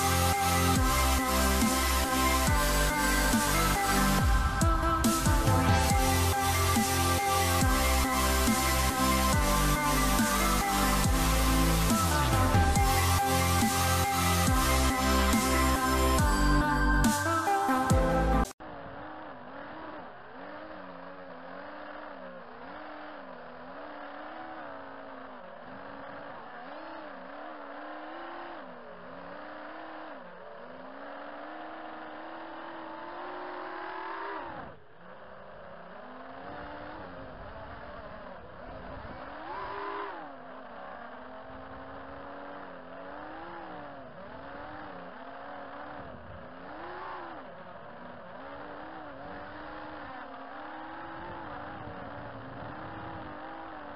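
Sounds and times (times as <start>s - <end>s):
quadcopter motors whining: 0.0s - 53.9s.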